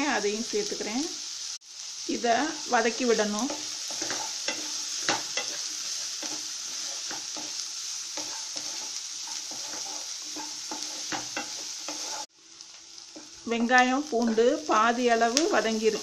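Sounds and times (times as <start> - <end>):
onions sizzling in hot oil: 0.0 - 16.0
wooden spatula scraping pan: 3.3 - 12.3.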